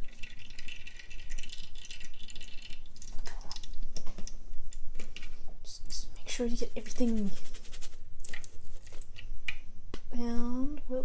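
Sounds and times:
liquid trickling through strainer: 0:00.0 - 0:05.3.

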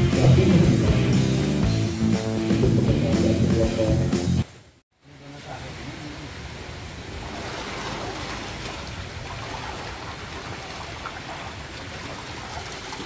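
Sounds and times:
running water: 0:05.0 - 0:13.0.

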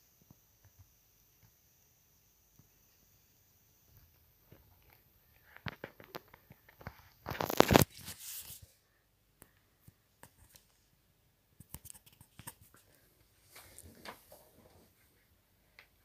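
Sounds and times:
phone rustling against microphone: 0:04.5 - 0:08.7.

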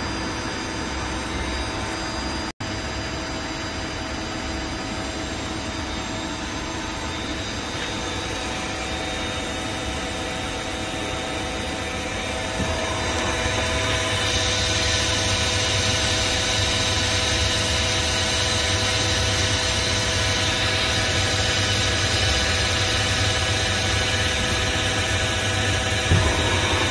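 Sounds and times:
lathe machine hum: 0:05.5 - 0:25.0, 0:25.8 - 0:26.9
held whining tones: 0:05.8 - 0:17.6, 0:26.1 - 0:26.9
hissing metal cutting: 0:26.1 - 0:26.9.

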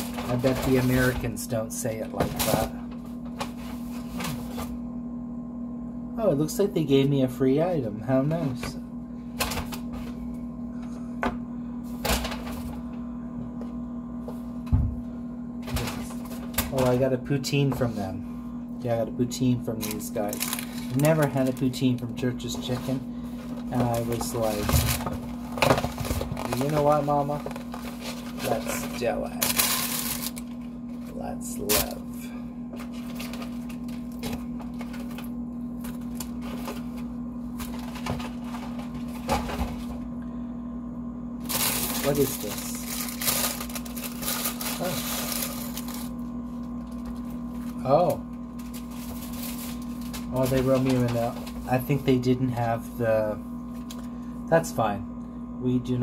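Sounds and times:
paper packaging rustling: 0:00.0 - 0:01.3, 0:19.8 - 0:32.0, 0:32.8 - 0:39.8, 0:41.4 - 0:47.8, 0:48.6 - 0:52.0
steady low hum: 0:00.0 - 0:56.0.

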